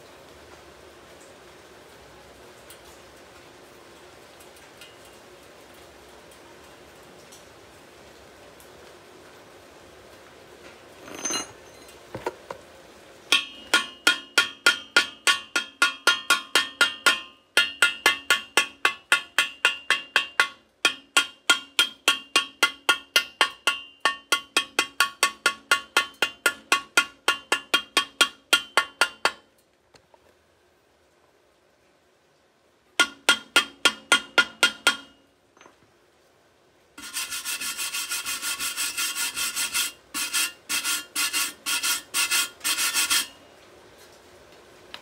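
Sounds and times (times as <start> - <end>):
thin steel ringing: 11.0 - 12.0, 13.3 - 14.1
chipping hammer striking thin steel: 13.3 - 29.4, 33.0 - 35.2.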